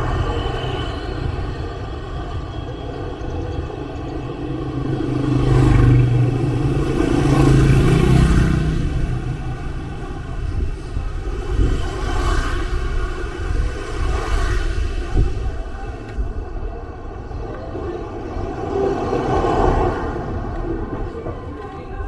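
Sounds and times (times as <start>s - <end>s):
motorcycles passing by: 4.1s - 13.6s.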